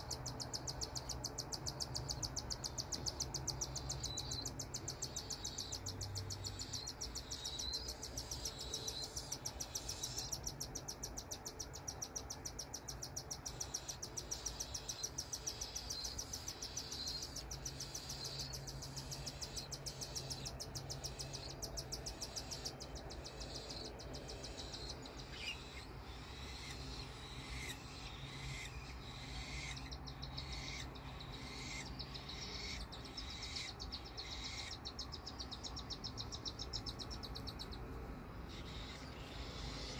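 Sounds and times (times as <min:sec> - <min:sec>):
bird chirps: 0:00.0 - 0:39.9
low steady hum: 0:00.0 - 0:39.9
nestlings pulsing chitter: 0:00.0 - 0:39.9.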